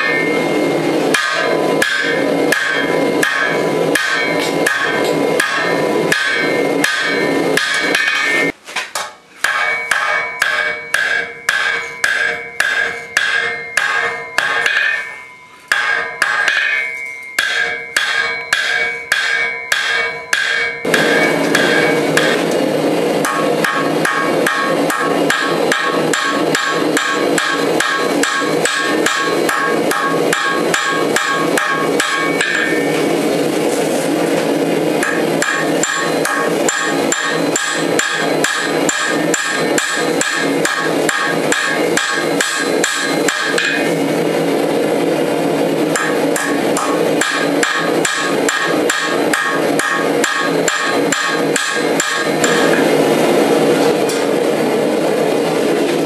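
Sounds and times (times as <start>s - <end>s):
anvil ringing: 0.0s - 8.6s, 9.4s - 33.7s, 34.3s - 44.6s, 45.6s - 54.3s
hammer blows on anvil: 0.0s - 44.9s, 45.6s - 54.4s.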